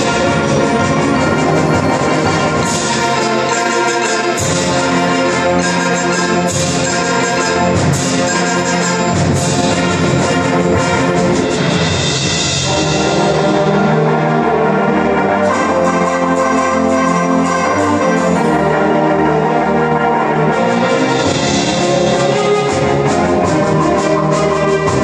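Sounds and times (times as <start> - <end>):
sharp percussion hits: 0.0 - 7.0
concert band playing: 0.0 - 25.0.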